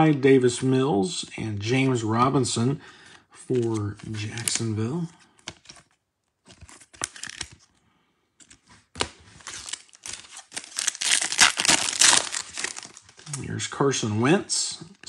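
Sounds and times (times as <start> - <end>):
foil wrapper crinkling and tearing: 6.5 - 7.6, 9.0 - 13.4.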